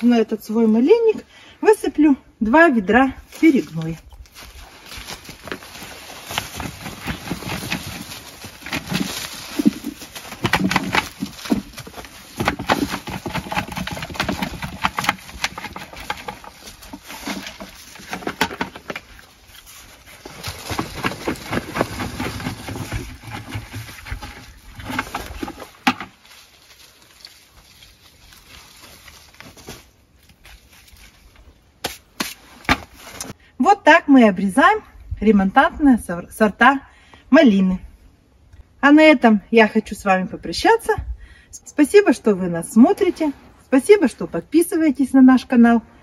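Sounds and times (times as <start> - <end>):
soil rustling and scraping: 2.9 - 33.4.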